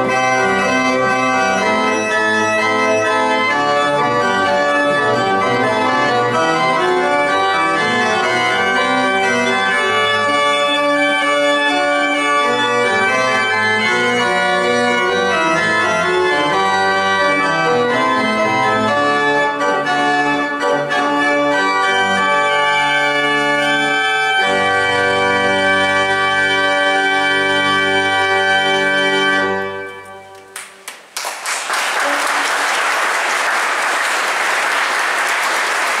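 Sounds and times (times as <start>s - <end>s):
organ playing chords: 0.0s - 30.6s
audience applause: 30.5s - 36.0s.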